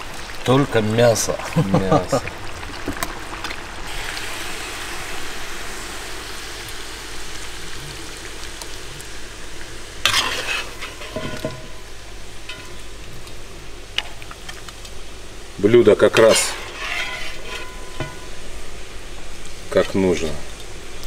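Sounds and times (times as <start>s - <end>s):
meat sizzling in a pot: 0.0s - 21.0s
metal skimmer scraping pot: 10.1s - 11.9s, 16.1s - 18.5s.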